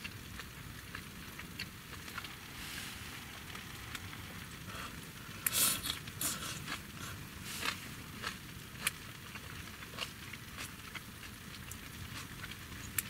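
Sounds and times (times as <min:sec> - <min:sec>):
person slurping: 0:02.2 - 0:07.9.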